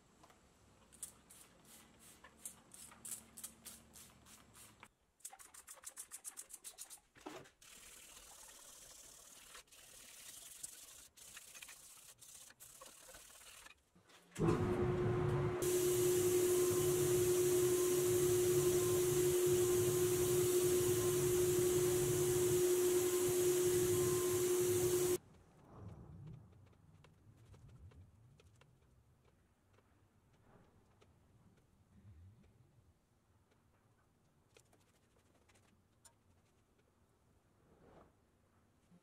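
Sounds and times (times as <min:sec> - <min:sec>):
sandpaper rubbing on metal: 0:07.6 - 0:13.8
air spray gun hissing: 0:15.6 - 0:25.2.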